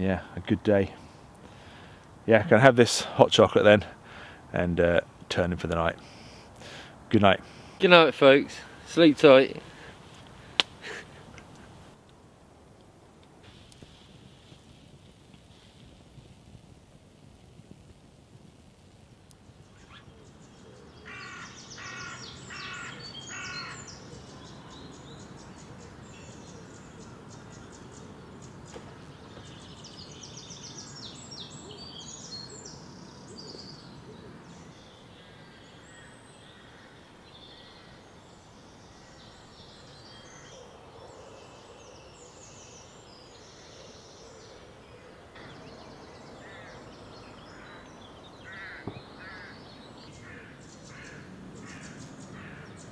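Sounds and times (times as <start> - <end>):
birds calling and singing: 19.4 - 52.9
harsh bird calls: 19.7 - 52.9.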